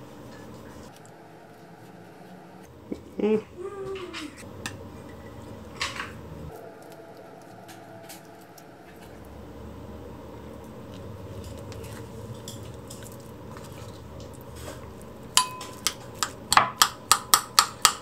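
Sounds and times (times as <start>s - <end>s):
spoon clinking on ceramic bowl: 15.4s - 18.0s.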